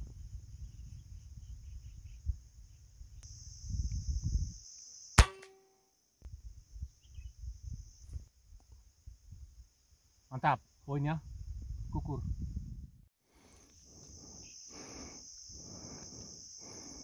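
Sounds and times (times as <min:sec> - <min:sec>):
air rifle shot: 0:05.2 - 0:05.6.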